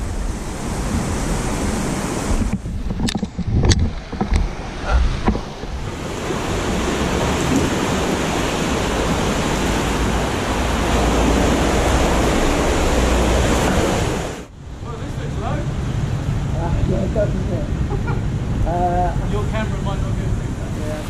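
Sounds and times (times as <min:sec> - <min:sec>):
river water rushing over rapids: 0:03.9 - 0:18.6.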